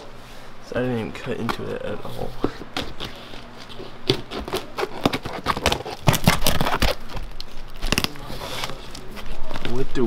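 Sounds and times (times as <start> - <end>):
cardboard box being torn open: 4.1 - 9.9.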